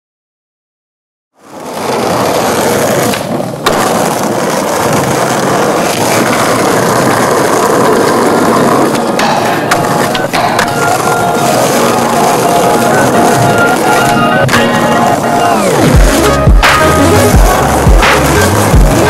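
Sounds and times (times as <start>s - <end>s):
skateboard wheels rolling on paving: 1.4s - 19.0s
sharp clack: 8.9s - 10.9s, 16.6s - 17.0s, 18.0s - 18.4s.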